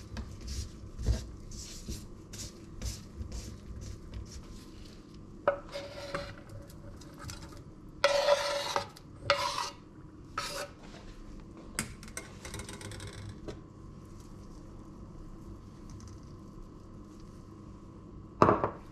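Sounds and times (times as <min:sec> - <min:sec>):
knife scraping on cutting board: 0:05.5 - 0:06.4, 0:08.0 - 0:09.8, 0:10.4 - 0:10.8.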